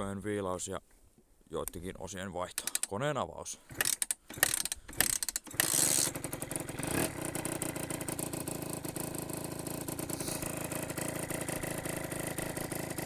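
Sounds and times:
motorcycle engine starting and idling: 3.6s - 13.0s.

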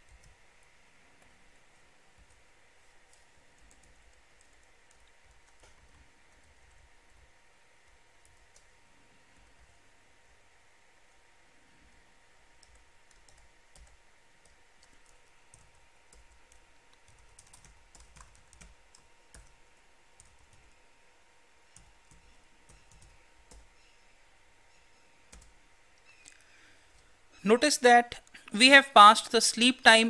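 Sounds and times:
faint typing on keyboard: 0.0s - 10.4s, 11.8s - 20.9s, 21.6s - 23.9s, 25.3s - 27.1s.

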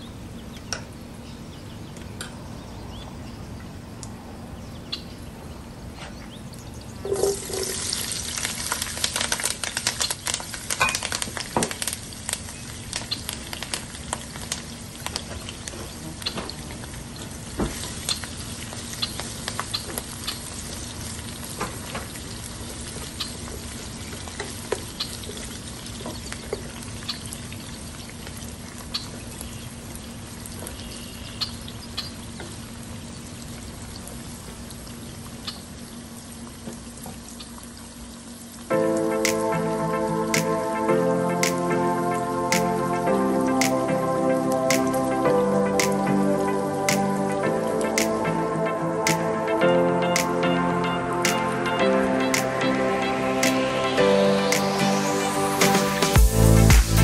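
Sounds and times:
food sizzling in hot oil: 7.0s - 27.3s
spattering crackles: 7.0s - 29.1s.

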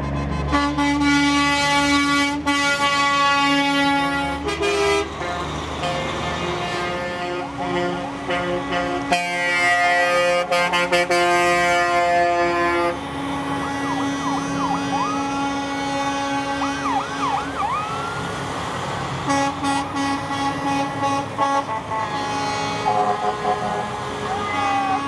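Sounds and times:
truck air horn blasting: 0.2s - 17.2s, 19.2s - 25.0s
siren sweeps: 13.4s - 15.7s, 16.5s - 18.5s, 22.9s - 25.0s.

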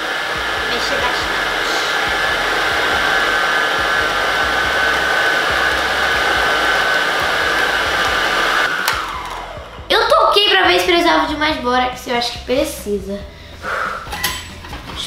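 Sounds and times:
stand mixer motor whine: 0.0s - 10.7s.

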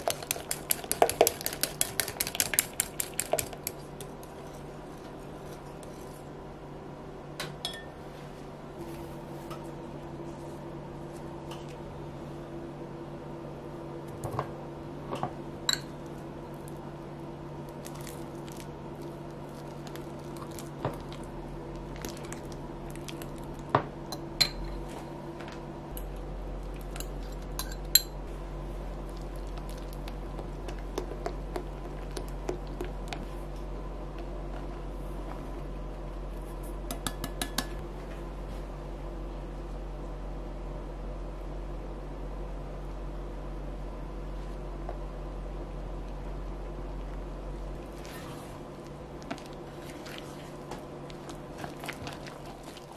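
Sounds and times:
spatula in batter: 0.0s - 4.7s
wire whisk stirring batter: 0.0s - 6.1s
fork mashing bananas: 0.0s - 6.2s, 29.0s - 34.8s.

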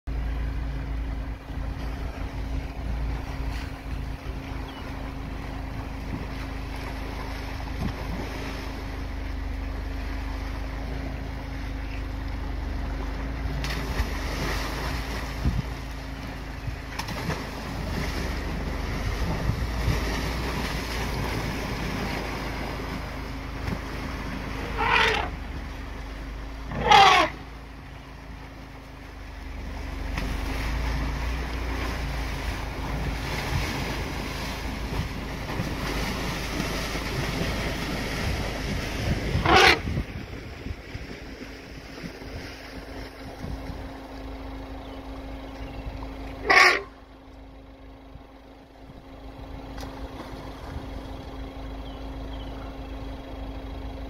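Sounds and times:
steady low hum: 0.1s - 54.0s
elephants splashing through water: 0.2s - 45.2s, 46.0s - 47.2s
wind on microphone: 14.8s - 15.9s, 17.8s - 21.8s, 37.2s - 44.0s
elephant trumpeting: 24.5s - 25.4s, 26.6s - 27.5s, 39.3s - 40.0s, 46.4s - 47.0s.

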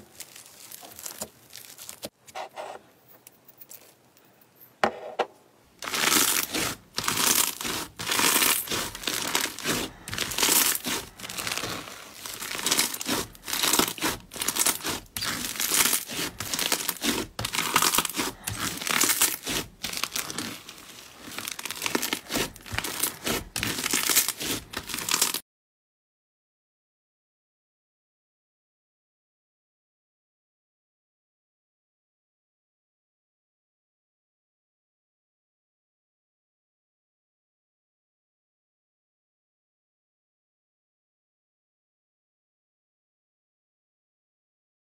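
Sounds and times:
slime squishing: 0.0s - 2.1s, 5.8s - 25.4s.

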